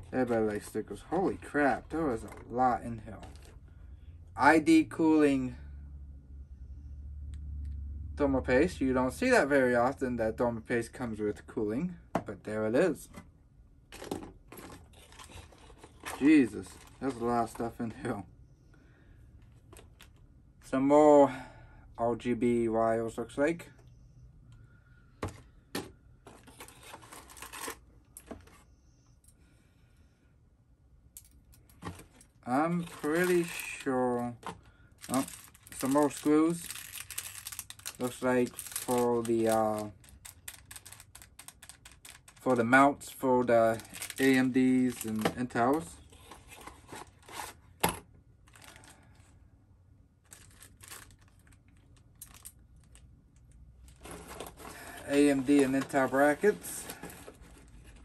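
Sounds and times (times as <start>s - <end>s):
plastic bag crinkling: 26.3s - 27.8s, 31.8s - 42.6s, 43.6s - 45.9s, 48.4s - 49.2s, 50.2s - 53.1s, 53.8s - 58.0s
cardboard box rustling: 53.9s - 58.0s.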